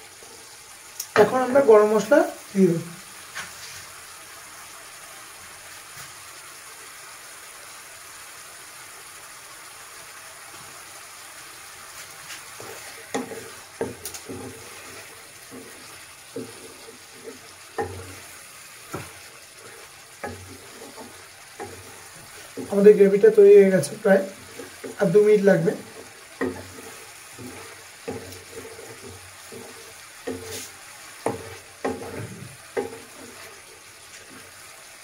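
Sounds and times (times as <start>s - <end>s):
gravy sizzling in a pan: 0.0s - 35.0s
spoon stirring and scraping pan: 11.8s - 35.0s.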